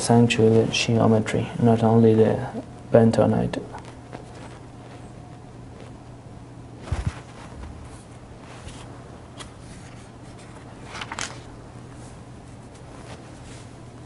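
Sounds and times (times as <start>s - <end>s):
low background hum: 0.0s - 14.0s.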